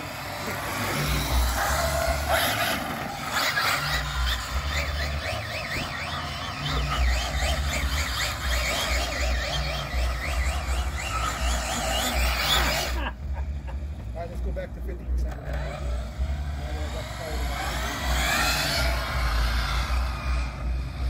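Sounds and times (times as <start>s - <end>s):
electric motor whine: 0.0s - 21.0s.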